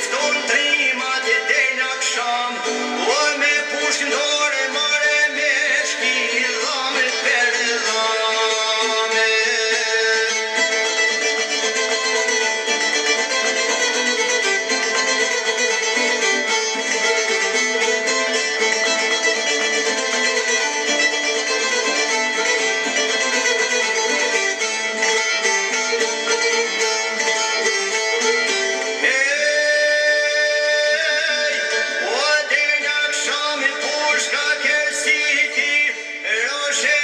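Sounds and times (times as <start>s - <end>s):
man singing: 0.0s - 12.1s, 28.9s - 37.0s
plucked string instrument melody: 0.0s - 37.0s.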